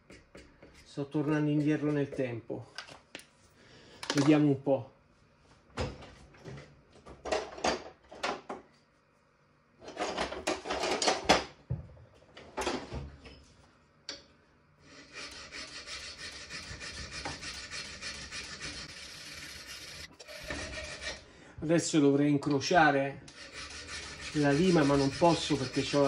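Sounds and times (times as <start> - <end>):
hand file rasping on metal: 14.9 - 21.2, 23.3 - 26.0.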